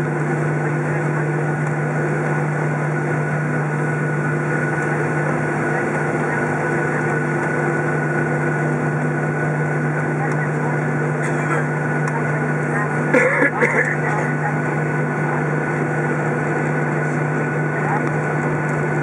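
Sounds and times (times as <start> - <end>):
airplane cabin engine hum: 0.0 - 19.0.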